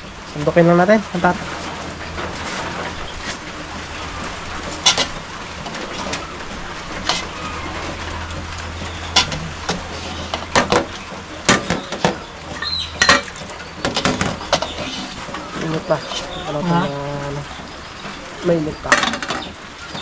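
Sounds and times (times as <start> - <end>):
metal pots and utensils clinking: 0.0 - 18.2, 18.8 - 20.0
low steady hum: 0.0 - 20.0.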